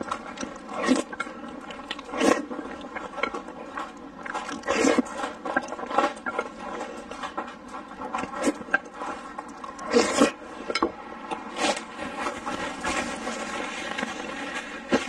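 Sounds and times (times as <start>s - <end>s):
wet mouth noises: 0.0s - 7.1s
noodles slurped and chewed: 0.0s - 15.0s
paper tissue rustling: 11.5s - 15.0s.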